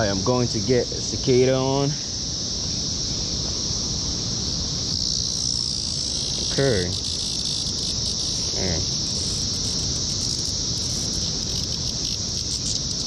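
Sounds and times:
cicadas singing: 0.0s - 13.0s.

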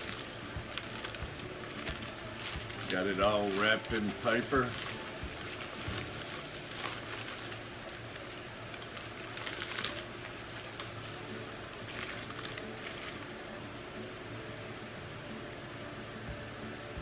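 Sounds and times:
newspaper rustling and crinkling: 0.0s - 13.4s.

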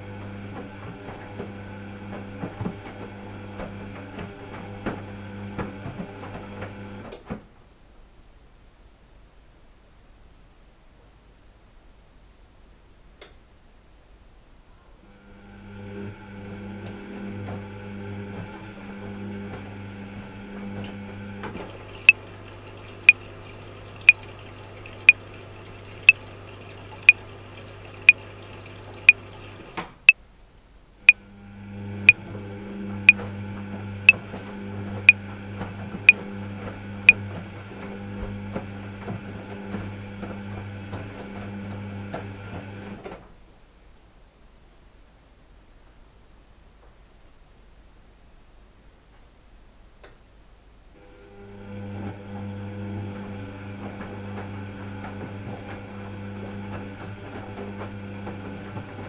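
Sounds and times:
washing machine humming: 0.0s - 7.3s, 15.0s - 30.1s, 31.0s - 43.2s, 51.0s - 59.0s.

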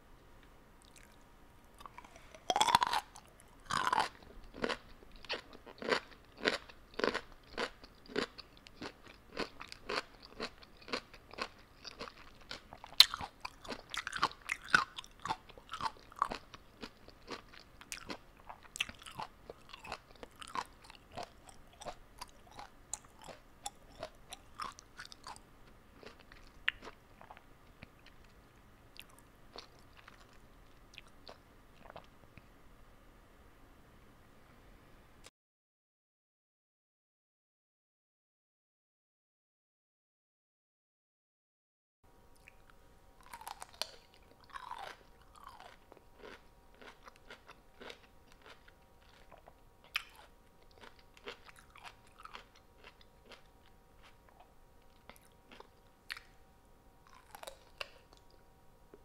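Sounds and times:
person chewing crunchy food: 0.8s - 32.1s, 42.4s - 56.4s, 57.0s - 58.4s.

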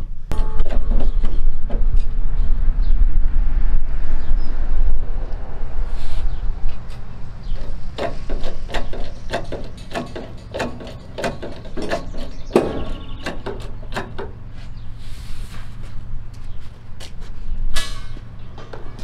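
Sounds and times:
hydraulic jack clicking and clanking: 7.4s - 14.4s.

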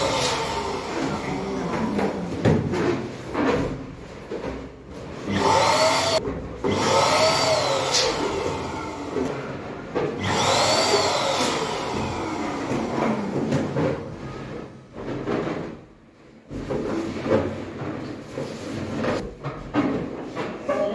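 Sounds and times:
electric balloon pump whining: 0.0s - 2.2s, 5.2s - 14.2s.

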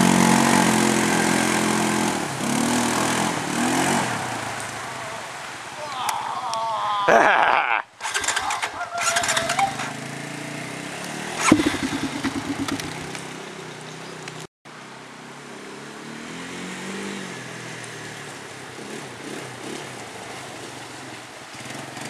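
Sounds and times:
atv engine running: 0.0s - 4.0s, 8.0s - 14.3s
atv engine revving: 0.0s - 4.8s, 8.0s - 14.2s, 15.5s - 22.0s.

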